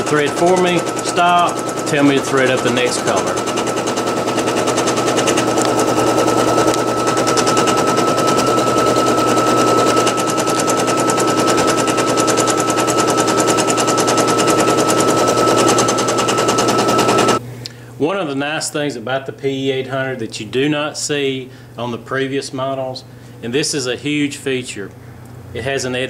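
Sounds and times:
embroidery machine needle clatter: 0.0 - 17.4
motor whine: 0.0 - 17.4.

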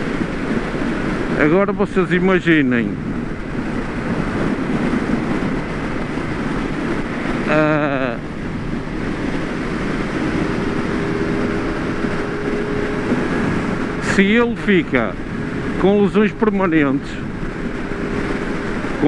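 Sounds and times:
wind rushing over microphone: 0.0 - 19.0
motorcycle engine: 3.0 - 19.0
person's wordless vocal sound: 7.4 - 8.3.

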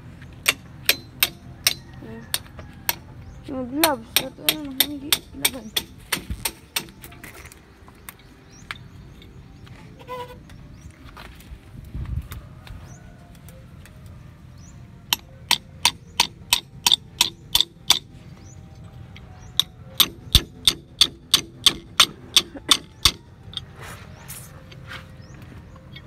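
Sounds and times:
hammer striking metal: 0.4 - 3.0, 3.8 - 7.2, 15.1 - 18.1, 19.5 - 23.6.

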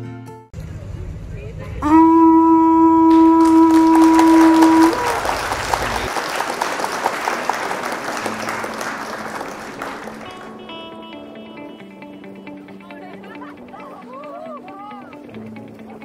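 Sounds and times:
horn blast: 1.8 - 11.8
applause: 3.1 - 10.8.

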